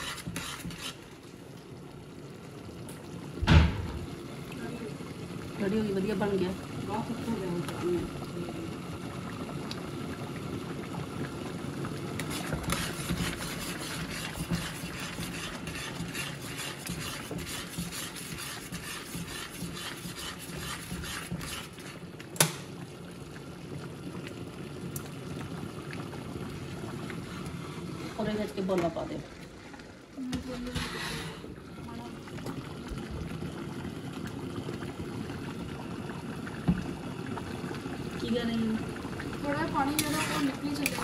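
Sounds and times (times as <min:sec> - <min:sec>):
gravy bubbling in a wok: 0:00.0 - 0:41.0.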